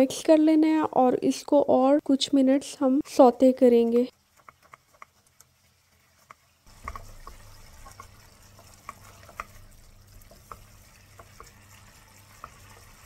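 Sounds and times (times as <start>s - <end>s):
spoon stirring wet mixture: 3.0s - 13.0s
spoon tapping pan: 6.2s - 13.0s.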